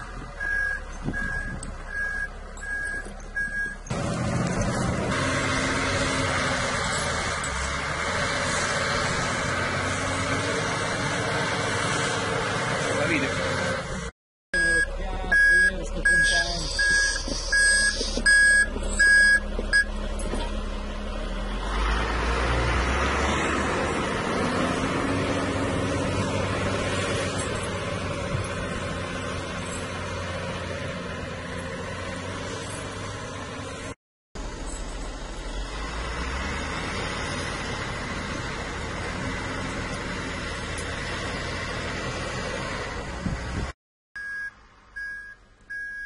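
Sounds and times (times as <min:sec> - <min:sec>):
diesel engine running: 0:00.0 - 0:46.0
reverse alarm beeping: 0:00.4 - 0:03.9, 0:14.6 - 0:19.9, 0:44.2 - 0:46.0.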